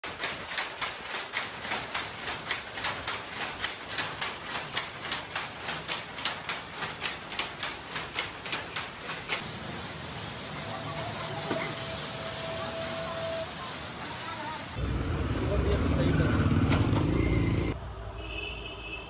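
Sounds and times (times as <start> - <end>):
loom clacking rapidly: 0.0 - 9.5.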